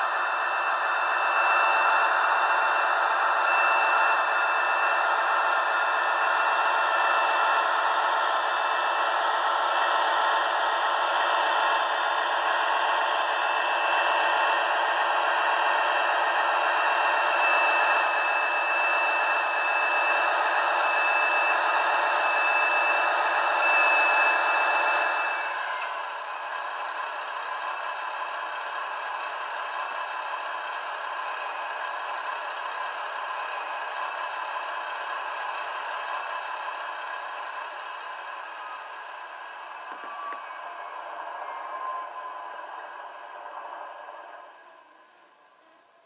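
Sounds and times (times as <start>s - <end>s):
thin high whistle: 0.0s - 26.8s, 38.2s - 45.1s
model locomotive diesel engine sound: 0.0s - 46.0s.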